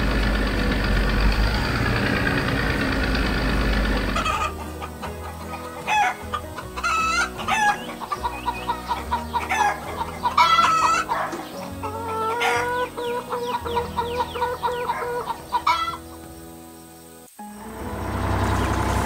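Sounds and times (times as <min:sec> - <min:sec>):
chickens clucking: 0:00.0 - 0:17.2
rooster crowing: 0:04.1 - 0:16.0.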